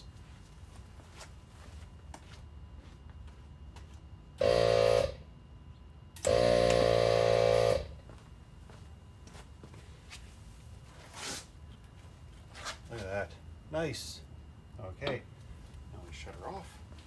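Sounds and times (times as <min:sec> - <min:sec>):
air compressor buzzing: 0:04.4 - 0:05.3, 0:06.2 - 0:08.1.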